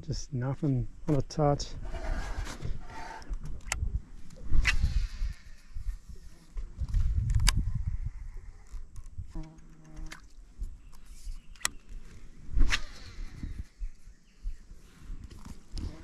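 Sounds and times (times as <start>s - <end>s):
rod swishes: 12.6s - 13.2s.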